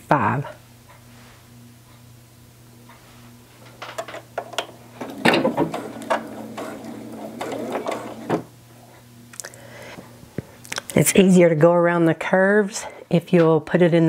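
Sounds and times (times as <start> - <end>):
sewing machine stitching: 4.4 - 8.5
sewing machine clicks: 4.5 - 8.5.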